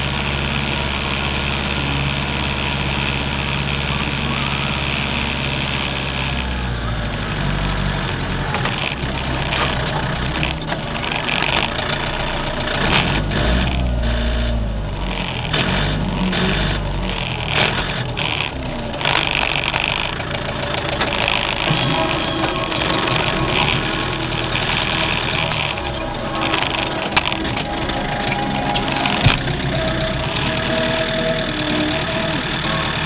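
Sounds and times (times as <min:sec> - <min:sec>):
tractor diesel engine running: 0:00.0 - 0:33.0
harrow frame and chains clanking: 0:07.2 - 0:33.0.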